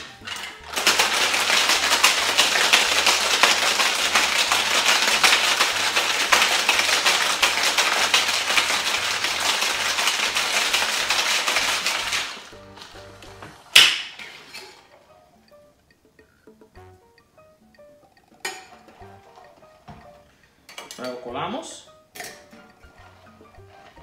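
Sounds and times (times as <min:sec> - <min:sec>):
ice rattling in cocktail shaker: 0:00.0 - 0:13.1.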